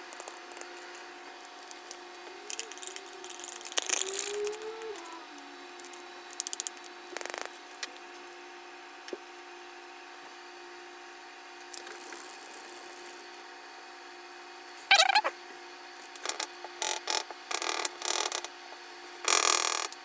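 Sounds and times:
steady hum: 0.0s - 19.3s
paint cups and pens clicking: 2.5s - 4.6s, 6.4s - 7.5s.

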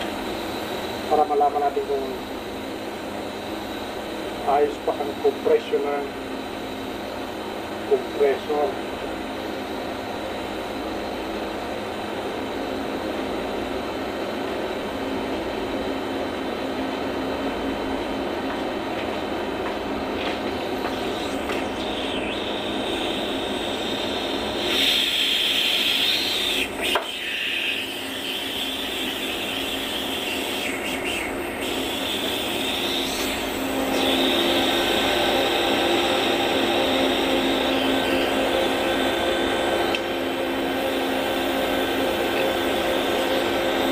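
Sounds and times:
electric motor humming and whining: 20.2s - 43.9s.

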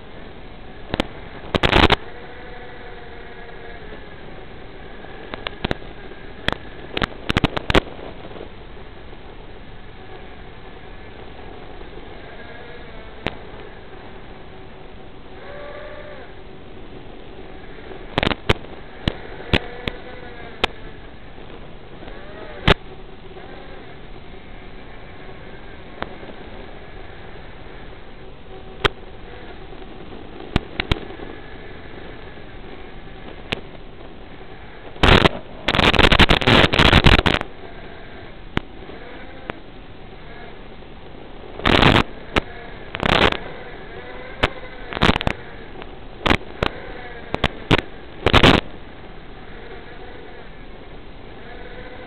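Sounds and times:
static pops: 0.0s - 9.4s, 11.0s - 14.5s, 15.4s - 52.0s
drone motors whining: 0.0s - 52.0s
radio video link hiss: 0.0s - 52.0s
sharp clicks: 0.9s - 2.0s, 5.2s - 7.9s, 18.1s - 20.8s, 29.8s - 31.4s, 34.9s - 37.5s, 41.6s - 43.5s, 44.1s - 48.7s.

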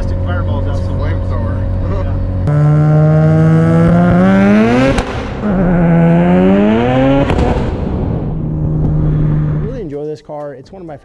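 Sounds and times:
rotary engine accelerating: 0.0s - 9.8s
exhaust crack at gear shift: 7.2s - 9.8s.

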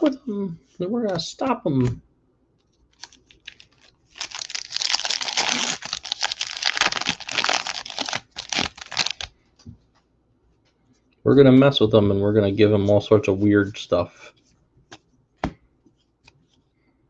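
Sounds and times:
foil wrapper crinkling and tearing: 2.9s - 9.3s.

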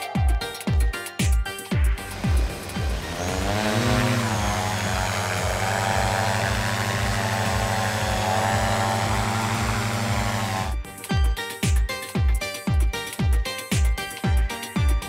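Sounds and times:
drone propeller hum: 1.9s - 10.8s.

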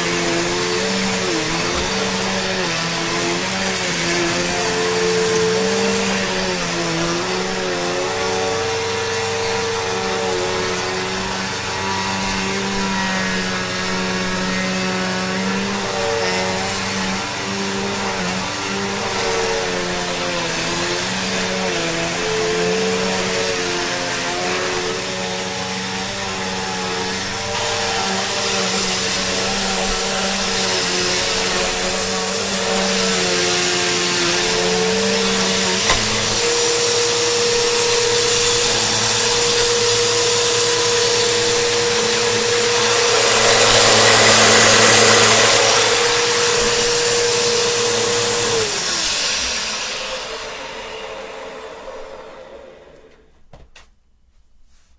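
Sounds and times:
vacuum cleaner motor whine: 0.0s - 53.4s
vacuum cleaner click: 34.1s - 37.7s, 49.0s - 53.9s.

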